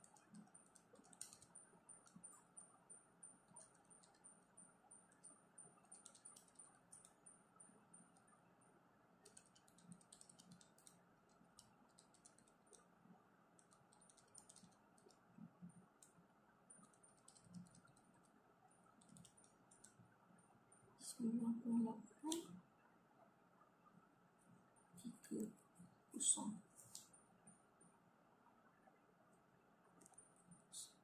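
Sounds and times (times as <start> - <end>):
calculator keys clicking: 6.0 - 7.2, 9.2 - 10.9.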